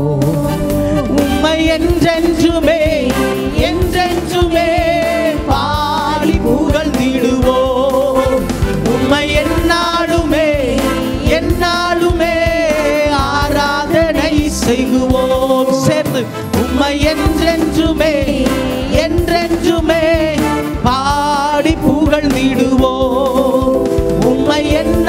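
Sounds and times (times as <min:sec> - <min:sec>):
instrumental accompaniment: 0:00.0 - 0:25.0
voices singing worship song: 0:00.0 - 0:25.0.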